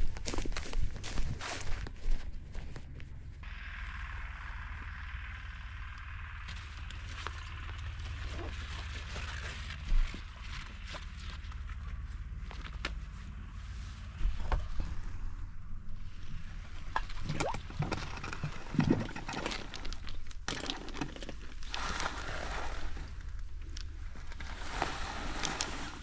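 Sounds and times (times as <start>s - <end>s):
liquid sloshing and gurgling: 16.8s - 22.6s.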